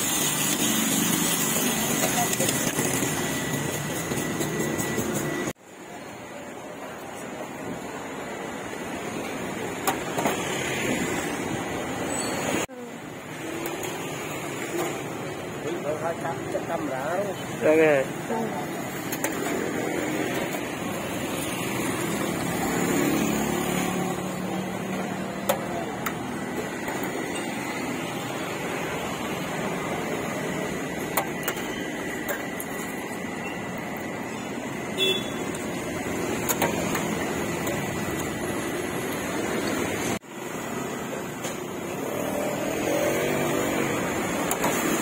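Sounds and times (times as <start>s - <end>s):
street traffic noise: 0.0s - 45.0s
sharp clicks and knocks: 36.4s - 38.4s.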